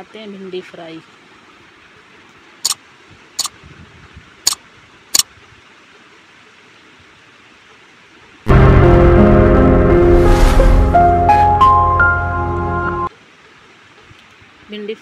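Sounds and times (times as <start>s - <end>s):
intro music with heavy bass: 8.5s - 13.1s.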